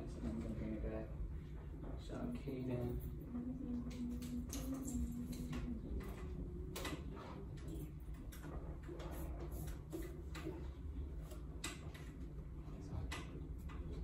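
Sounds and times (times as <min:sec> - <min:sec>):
light clicks and taps: 0:13.0 - 0:14.0.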